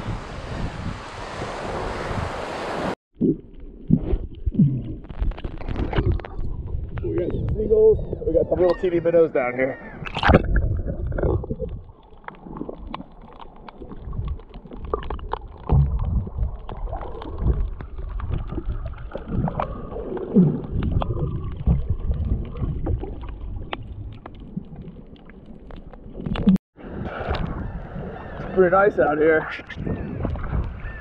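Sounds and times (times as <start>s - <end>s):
underwater gurgling: 3.2s - 8.9s, 9.9s - 26.6s.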